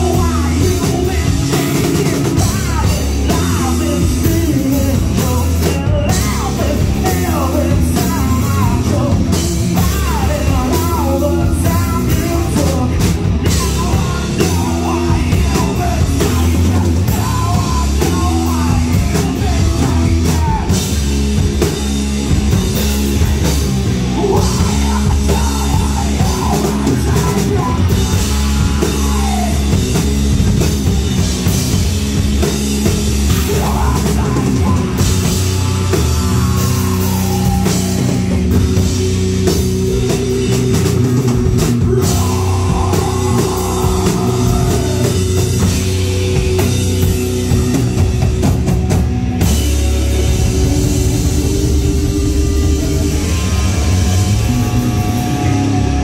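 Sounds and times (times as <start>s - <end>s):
man singing: 0.0s - 21.0s, 23.2s - 30.1s, 33.2s - 47.0s
heavy rock band playing: 0.0s - 56.0s.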